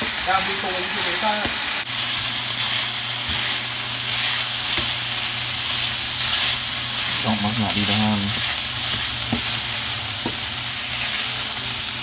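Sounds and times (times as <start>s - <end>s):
meat and onions sizzling in skillet: 0.0s - 12.0s
wooden spatula stirring: 2.6s - 5.0s, 5.6s - 11.6s.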